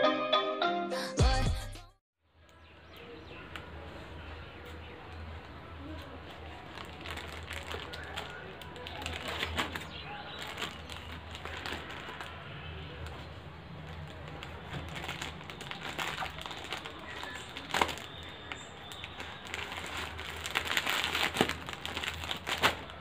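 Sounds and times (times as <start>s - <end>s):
plastic bag crinkling: 2.9s - 23.0s
sharp crackle: 5.4s - 13.2s, 13.8s - 23.0s.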